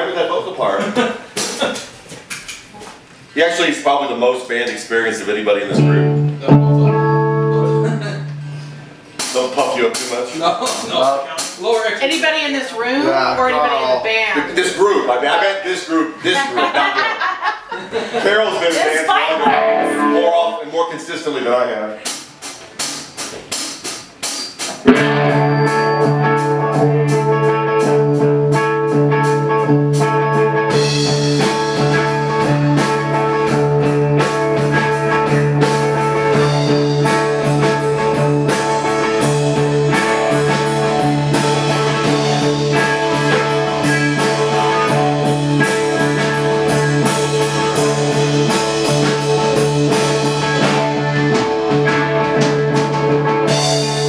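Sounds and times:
drums: 0.0s - 3.3s, 5.7s - 13.5s, 18.3s - 20.0s, 22.0s - 54.0s
electric guitar: 5.7s - 9.3s, 19.0s - 20.4s, 24.6s - 54.0s
electric bass: 5.7s - 9.5s, 24.8s - 54.0s.

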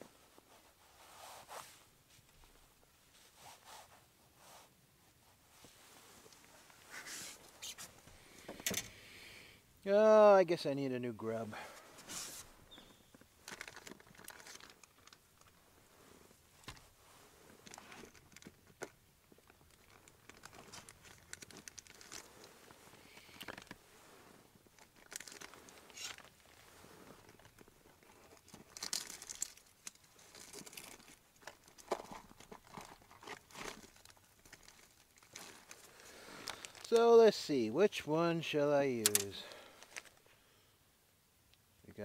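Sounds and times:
plastic packaging crinkling: 13.4s - 15.6s, 19.5s - 22.5s, 24.7s - 26.6s, 27.2s - 37.0s
small clicks: 39.0s - 40.1s.

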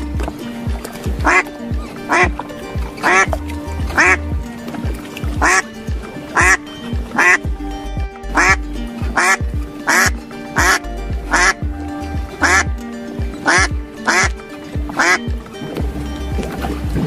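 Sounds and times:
background music: 0.0s - 17.0s
duck quacking: 1.2s - 2.4s, 3.0s - 4.2s, 5.4s - 5.7s, 6.3s - 7.4s, 8.3s - 11.6s, 12.4s - 12.7s, 13.4s - 15.2s.

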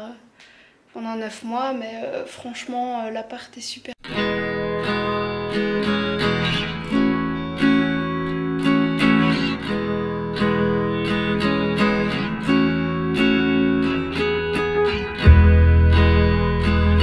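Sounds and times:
strummed acoustic guitar: 4.1s - 17.0s.

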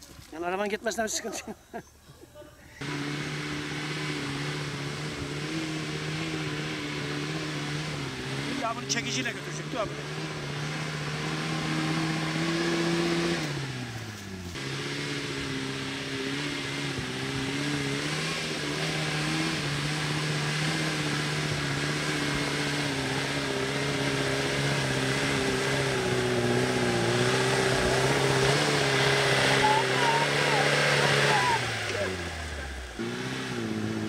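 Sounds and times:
vehicle engine running: 2.8s - 34.0s
onlookers talking: 21.7s - 33.0s.

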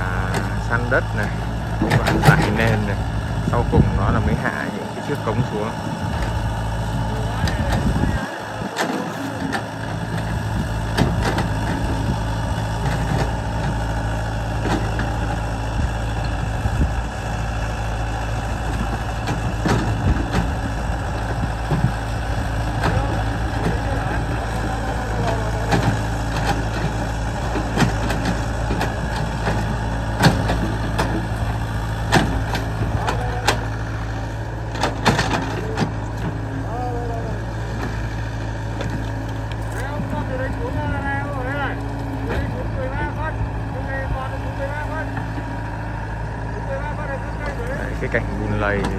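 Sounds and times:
excavator diesel engine running: 0.0s - 48.9s
excavator bucket knocks and clanks: 10.9s - 12.0s, 19.2s - 20.7s, 25.6s - 31.4s, 32.0s - 33.7s, 34.7s - 36.4s.

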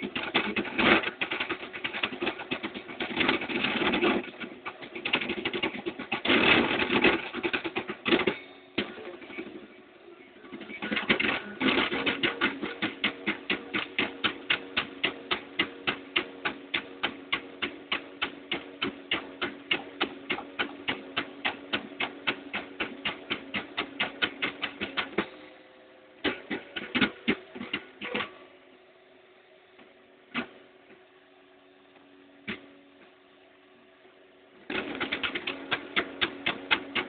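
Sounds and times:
steady motor hum: 0.0s - 37.0s
three d printer clicking: 10.5s - 25.4s, 34.7s - 37.0s.

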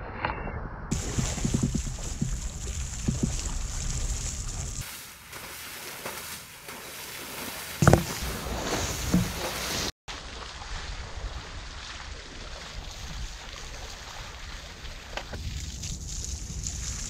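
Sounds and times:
wind buffeting microphone: 0.9s - 4.8s, 12.8s - 17.0s
elephant splashing through mud: 0.9s - 17.0s
loud wet thump: 7.8s - 9.6s.

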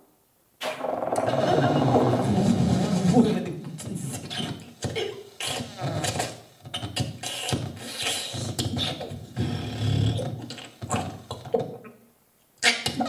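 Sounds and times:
mouth clicks and hisses: 3.8s - 9.3s.

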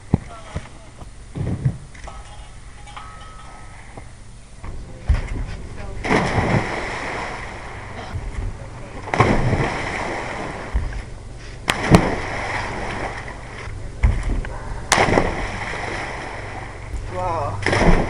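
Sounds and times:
water splashing in a pool: 5.1s - 8.4s, 9.1s - 18.0s.

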